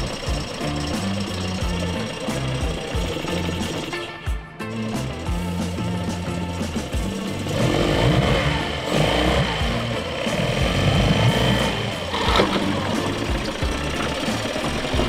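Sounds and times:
outboard motor running: 0:00.0 - 0:15.0.

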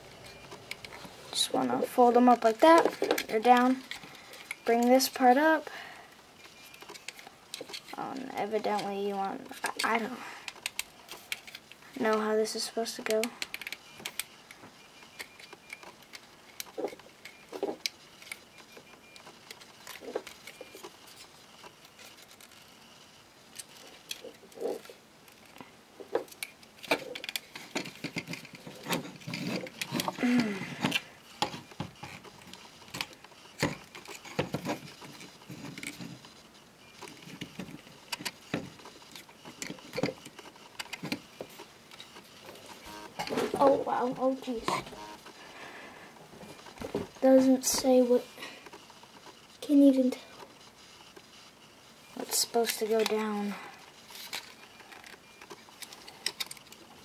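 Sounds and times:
plastic toy parts clicking: 0:09.5 - 0:12.2, 0:26.2 - 0:30.2, 0:52.6 - 0:53.3, 0:54.1 - 0:56.8.

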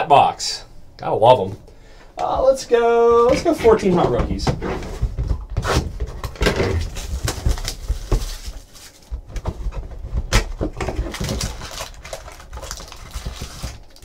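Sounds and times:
cardboard box crackling and rustling: 0:03.4 - 0:14.0
foil packs pulled out: 0:06.4 - 0:09.1, 0:10.8 - 0:14.0.

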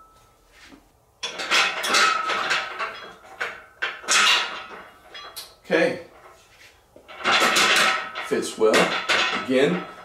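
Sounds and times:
metal clanking on metal: 0:01.2 - 0:06.4, 0:07.0 - 0:10.0
sharp metal knocks: 0:07.1 - 0:10.0.

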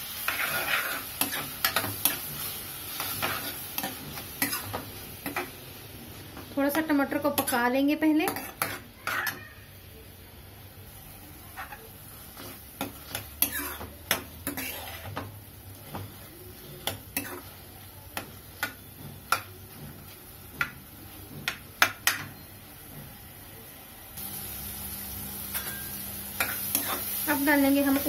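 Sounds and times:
metal ladle scraping a pan: 0:00.2 - 0:05.5, 0:08.2 - 0:09.4, 0:11.5 - 0:15.4.

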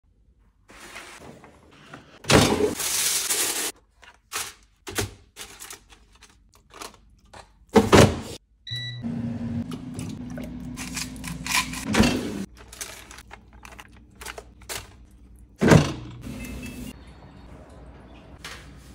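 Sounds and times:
packaging rustling: 0:05.3 - 0:07.1, 0:12.5 - 0:15.0
appliance beep: 0:08.6 - 0:09.4, 0:16.2 - 0:18.3.

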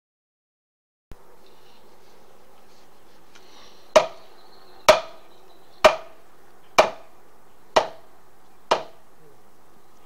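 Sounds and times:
hammer striking wood: 0:04.0 - 0:04.2, 0:04.9 - 0:05.2, 0:05.8 - 0:06.2, 0:06.8 - 0:07.1, 0:07.7 - 0:08.1, 0:08.7 - 0:09.0.

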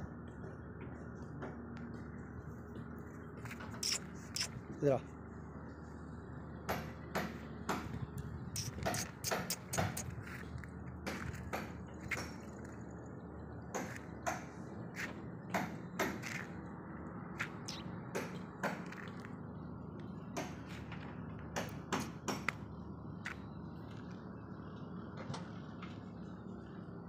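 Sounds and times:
steady low hum: 0:00.0 - 0:25.2
sharp clicks and taps: 0:08.6 - 0:10.1.

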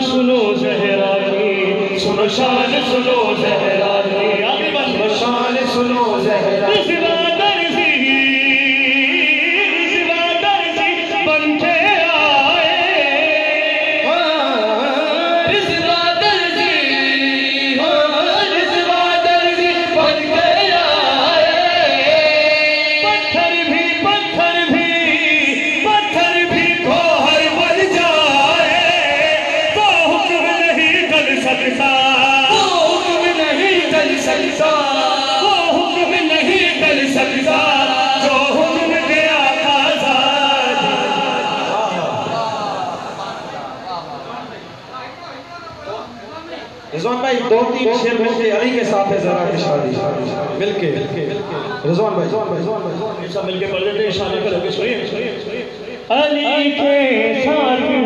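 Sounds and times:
men singing into microphones: 0:00.0 - 0:43.8.

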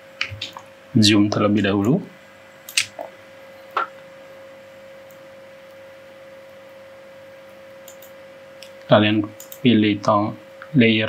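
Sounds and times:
faint steady hum: 0:00.0 - 0:11.0
short clicks: 0:02.7 - 0:03.1, 0:07.8 - 0:09.6.

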